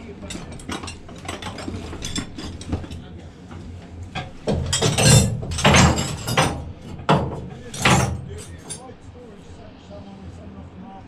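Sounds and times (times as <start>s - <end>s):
metal spanners clinking: 0.0s - 3.1s, 4.2s - 8.9s.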